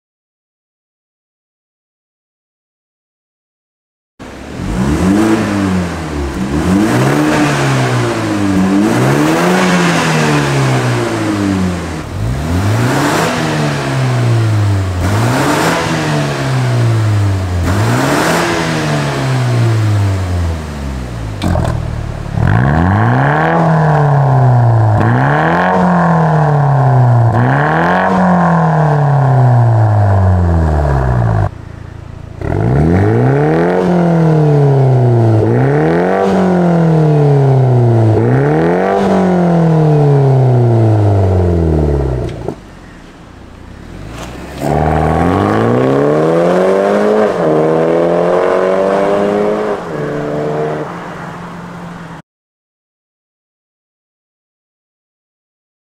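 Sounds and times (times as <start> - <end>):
car accelerating away: 4.2 - 52.2
car engine revving: 4.2 - 52.2.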